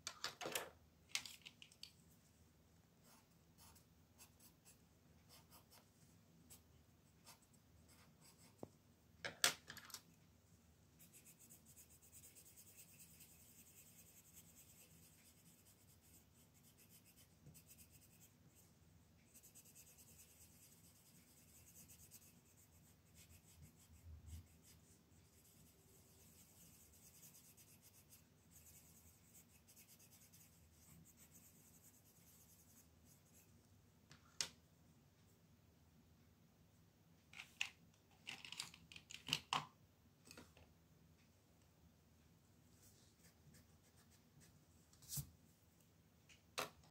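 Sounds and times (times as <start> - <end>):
pencil scratching on paper: 3.0 - 5.8, 7.2 - 8.7, 11.0 - 18.4, 19.3 - 33.4.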